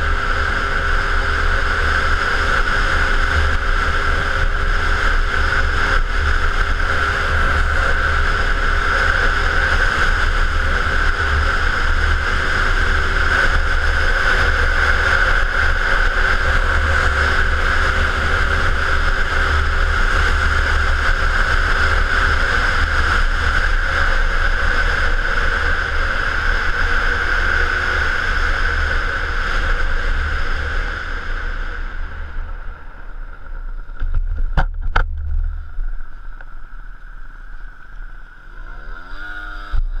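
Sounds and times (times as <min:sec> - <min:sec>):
scooter engine: 0:00.0 - 0:40.0
wind buffeting camera: 0:29.8 - 0:38.0.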